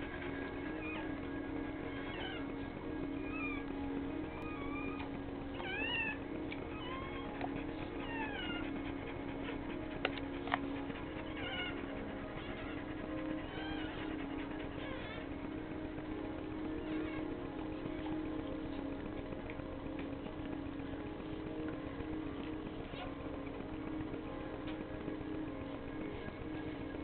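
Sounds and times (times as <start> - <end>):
puppy squeaking and mewling: 0.0 - 19.0
steady low hum: 0.0 - 27.0.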